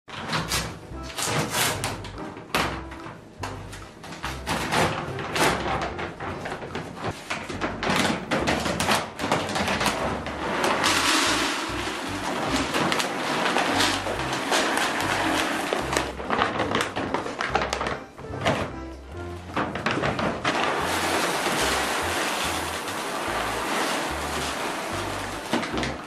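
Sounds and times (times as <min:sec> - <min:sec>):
background music: 0:00.1 - 0:26.0
plastic bags crinkling: 0:04.2 - 0:18.7, 0:19.4 - 0:26.0
kibble pouring into plastic bin: 0:09.3 - 0:17.8, 0:19.8 - 0:26.0.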